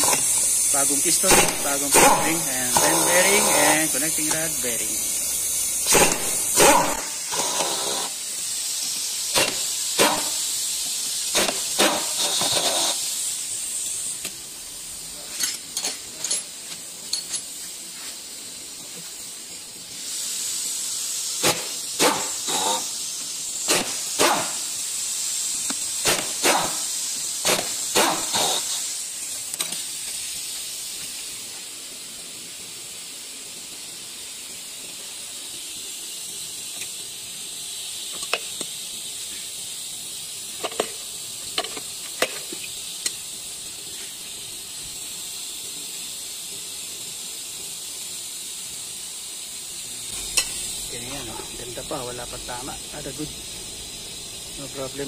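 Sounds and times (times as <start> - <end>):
compressed air hissing: 0.0 - 55.0
impact wrench rattling: 5.8 - 7.8.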